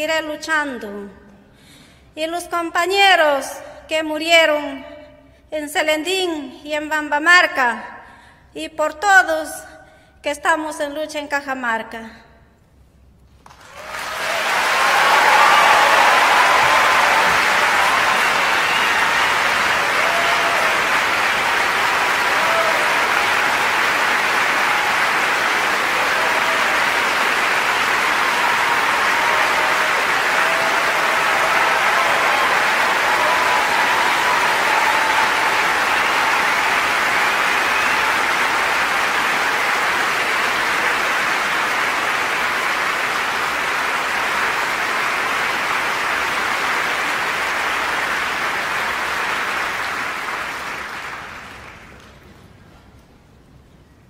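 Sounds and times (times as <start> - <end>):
audience applauding: 13.4 - 53.0.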